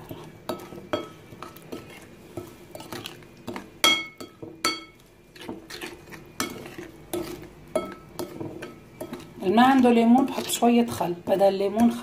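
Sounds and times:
metal spoon clinking ceramic bowl: 0:03.5 - 0:05.0, 0:06.4 - 0:09.2.

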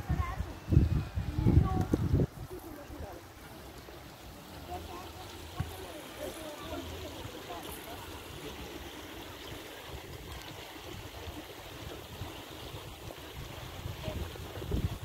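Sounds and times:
wind buffeting microphone: 0:00.0 - 0:03.2, 0:09.8 - 0:15.0
stream running over stones: 0:00.0 - 0:15.0.

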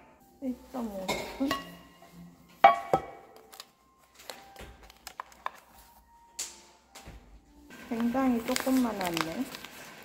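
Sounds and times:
kitchenware knocking and clinking: 0:01.0 - 0:02.0, 0:02.6 - 0:03.4.

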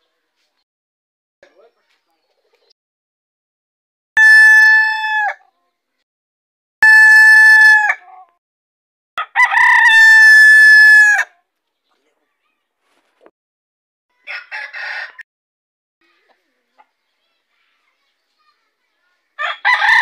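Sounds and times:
rooster crowing: 0:09.2 - 0:11.3, 0:14.2 - 0:15.2, 0:19.4 - 0:20.0.

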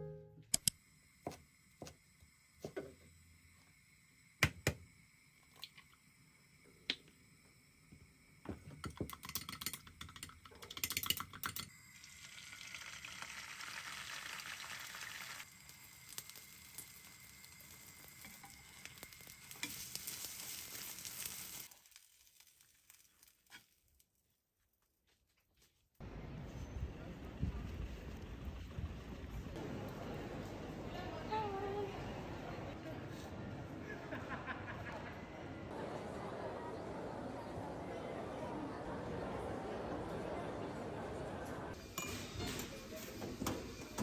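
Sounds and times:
chopsticks beating egg in glass: 0:08.8 - 0:11.7
egg sizzling in frying pan: 0:10.9 - 0:24.2.

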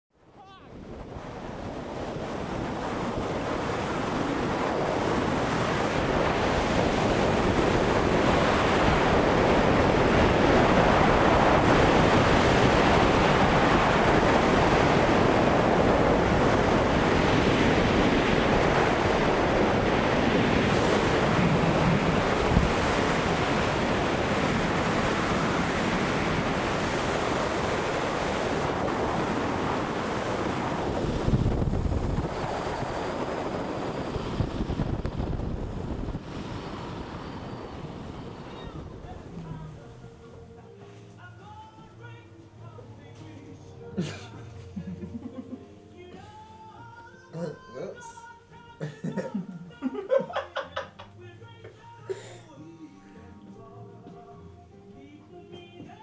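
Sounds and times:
wind rushing on microphone: 0:00.2 - 0:40.2.

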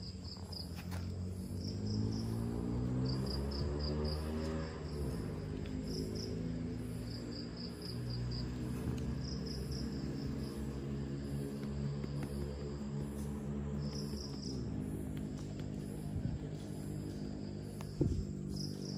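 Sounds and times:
crickets chirping: 0:00.0 - 0:18.9.

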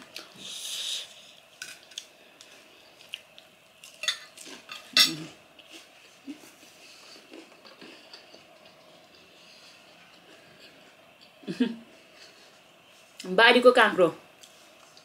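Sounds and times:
cutlery clinking on a plate: 0:04.0 - 0:05.3.

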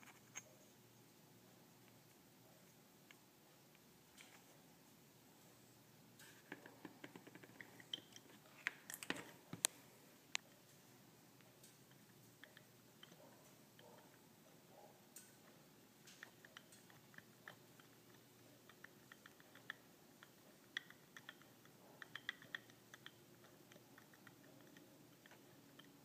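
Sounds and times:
faint light clicks and ticks: 0:15.1 - 0:26.0.

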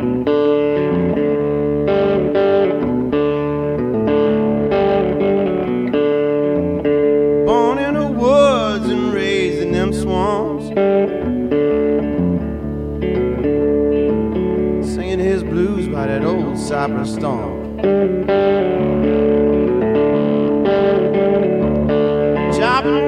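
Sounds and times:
guitar-led song: 0:00.0 - 0:23.0
wavering singing voice: 0:07.5 - 0:10.8, 0:22.5 - 0:23.0.

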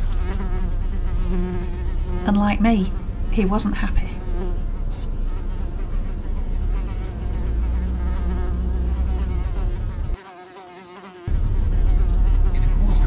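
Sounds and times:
insect buzzing at a windscreen: 0:00.0 - 0:13.0
van driving rumble: 0:01.8 - 0:10.2, 0:11.3 - 0:13.0.

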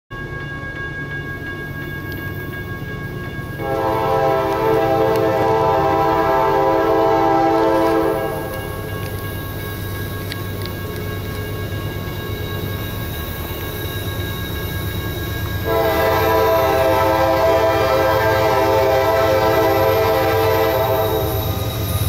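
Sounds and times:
train rumbling: 0:00.1 - 0:22.0
locomotive air horn blast: 0:03.6 - 0:08.6, 0:15.7 - 0:21.6.

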